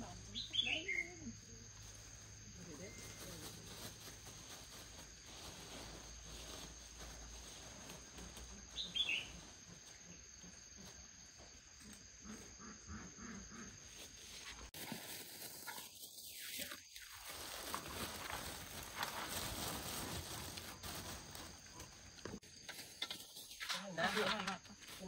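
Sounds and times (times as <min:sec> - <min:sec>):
insects droning: 0:00.0 - 0:25.0
bird chirp: 0:00.3 - 0:01.4, 0:08.7 - 0:10.3.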